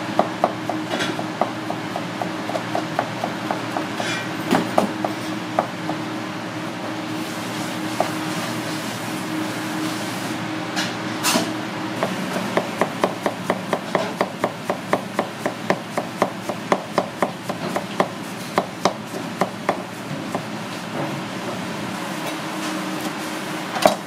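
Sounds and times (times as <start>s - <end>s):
steady hum: 0.0s - 21.0s
knife chopping on cutting board: 0.2s - 6.0s, 8.0s - 8.2s, 12.0s - 20.5s.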